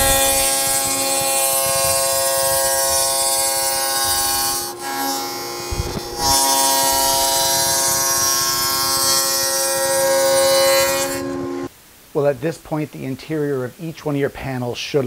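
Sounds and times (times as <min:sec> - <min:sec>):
low thump: 0:00.0 - 0:02.6
table saw cutting plywood: 0:00.0 - 0:11.7.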